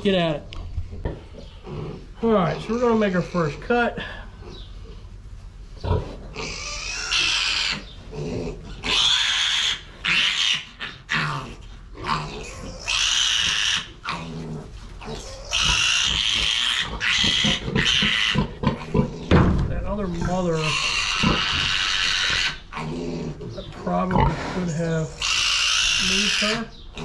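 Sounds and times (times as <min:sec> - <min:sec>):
piglet squealing: 0:06.4 - 0:07.9, 0:08.8 - 0:14.3, 0:15.1 - 0:19.1, 0:20.6 - 0:23.3, 0:24.2 - 0:27.0.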